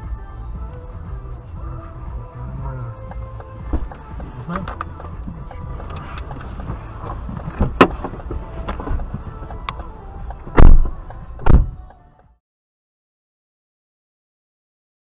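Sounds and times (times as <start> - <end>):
car engine idling: 0.0 - 12.2
loud deep thumps: 3.0 - 5.8, 6.6 - 9.2, 10.5 - 11.8.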